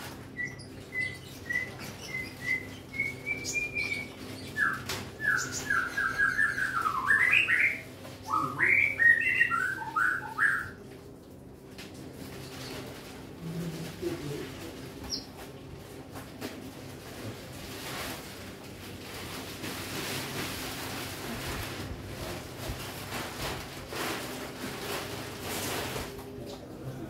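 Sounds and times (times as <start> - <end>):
faint low hum: 0.0 - 27.0
packaging rustling and scraping: 15.9 - 26.4.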